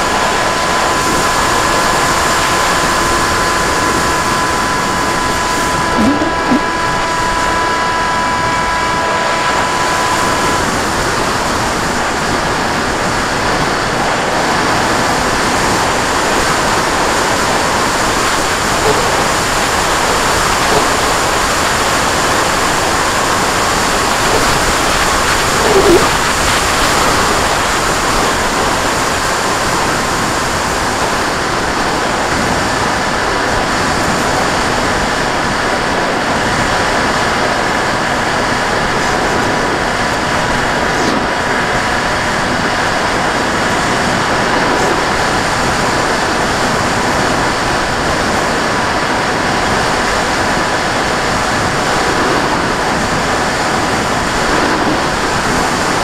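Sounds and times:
faint steady whine: 0:00.0 - 0:56.0
model airplane propeller: 0:00.0 - 0:56.0
wind rushing: 0:16.6 - 0:27.3.

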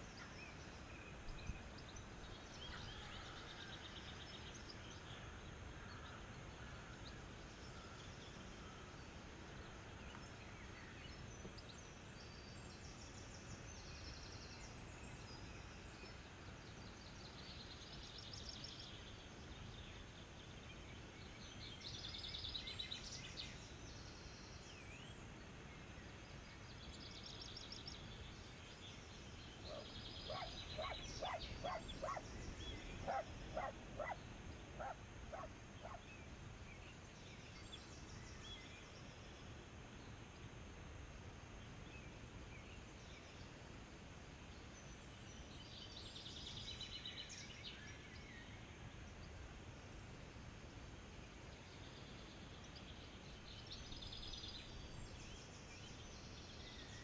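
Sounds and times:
small birds singing trills: 0:00.0 - 0:40.4
sharp animal calls: 0:29.7 - 0:32.2, 0:33.0 - 0:34.2, 0:34.8 - 0:36.0.

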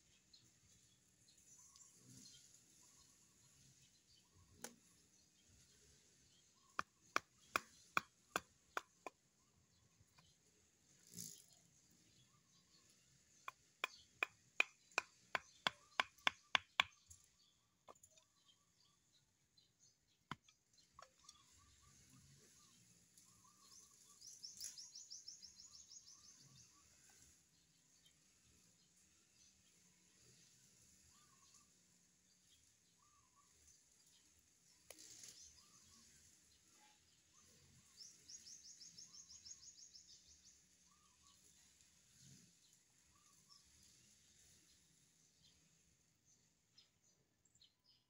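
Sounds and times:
bamboo sticks knocking: 0:06.8 - 0:09.2, 0:13.5 - 0:17.0.

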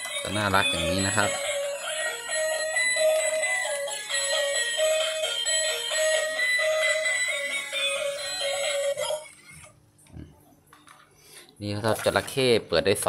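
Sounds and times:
toy electronic tune: 0:00.0 - 0:09.7.

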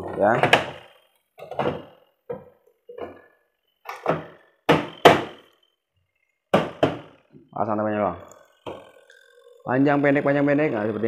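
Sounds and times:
plastic panel clunks and knocks: 0:00.0 - 0:00.8, 0:01.4 - 0:03.2, 0:03.9 - 0:05.4, 0:06.5 - 0:07.1.

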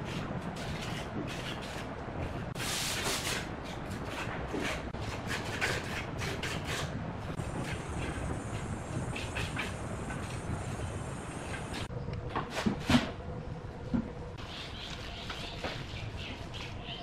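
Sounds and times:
putty knife scraping concrete: 0:00.0 - 0:01.9, 0:02.6 - 0:07.0.

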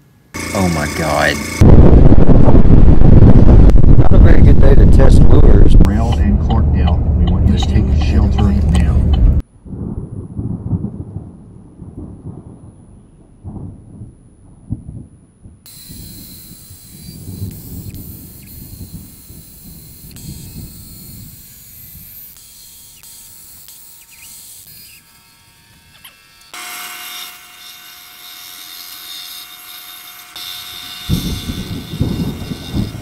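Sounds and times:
bandsaw cutting wood: 0:00.4 - 0:01.6, 0:15.7 - 0:33.0
wood sanding noise: 0:00.4 - 0:01.6, 0:15.7 - 0:33.0
disc sander whine: 0:00.4 - 0:01.8, 0:15.7 - 0:33.0.

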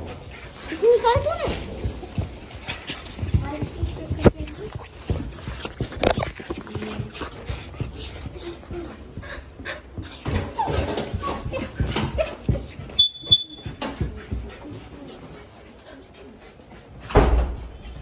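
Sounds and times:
knocks and rustles: 0:00.0 - 0:15.3
dog whimpering: 0:02.2 - 0:13.6.

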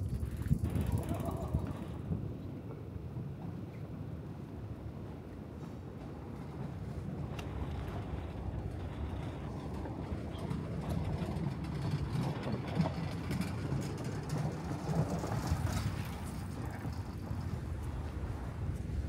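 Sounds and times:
low street rumble: 0:00.0 - 0:19.0
faint scattered clicks: 0:07.3 - 0:11.2.

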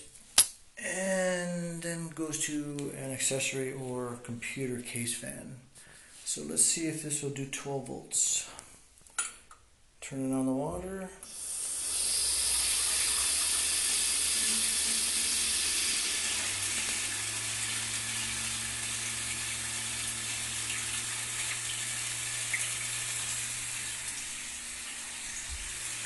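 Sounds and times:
water rushing through hose: 0:11.3 - 0:26.0
small generator humming: 0:11.4 - 0:26.0.

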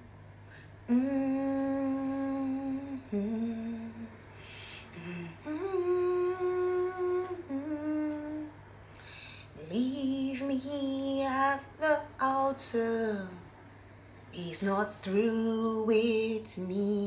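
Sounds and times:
short breath: 0:00.5 - 0:00.8, 0:04.3 - 0:05.0, 0:08.9 - 0:09.6
woman humming a gospel melody: 0:00.8 - 0:08.6.

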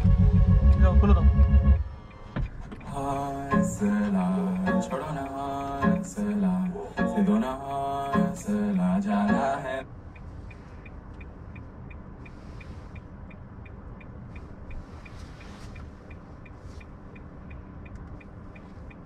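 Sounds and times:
music in car: 0:00.0 - 0:10.6
car road noise: 0:00.0 - 0:19.0
light even ticking: 0:02.4 - 0:19.0.

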